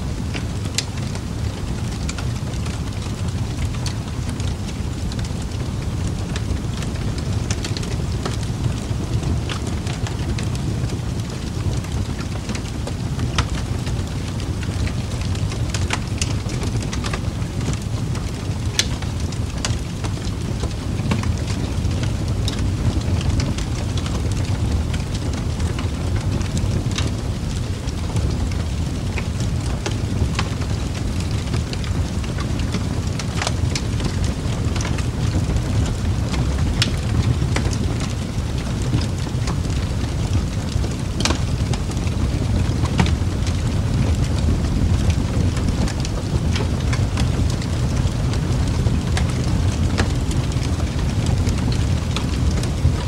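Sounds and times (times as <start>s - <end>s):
steady rain: 0.0s - 53.0s.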